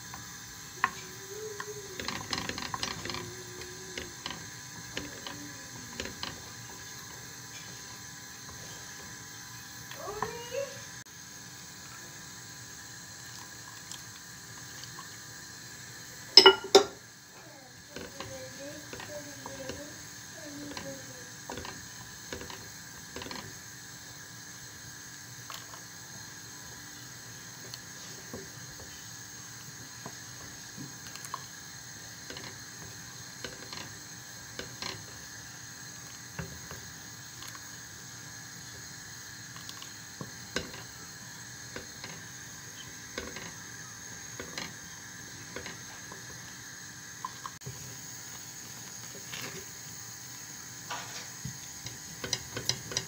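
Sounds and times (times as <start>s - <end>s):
steady background hum: 0.0s - 53.0s
spoon scraping saucepan: 16.4s - 17.0s.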